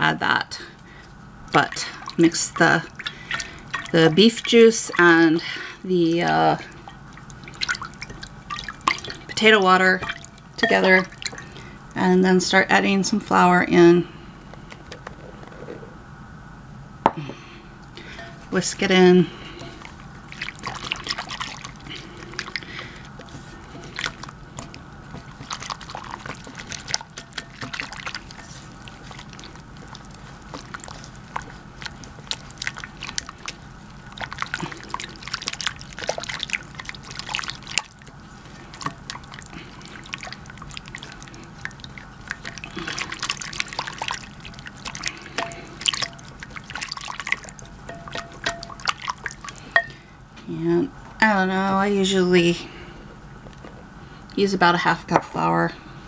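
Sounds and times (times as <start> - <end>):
whisk clicking and sloshing: 1.5 - 12.1, 17.8 - 50.2.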